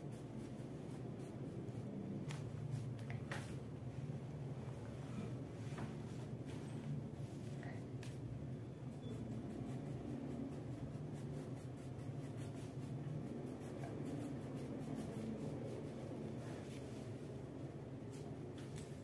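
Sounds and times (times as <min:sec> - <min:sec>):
low steady hum: 0:00.0 - 0:19.0
crayon scribbling on paper: 0:09.1 - 0:16.8.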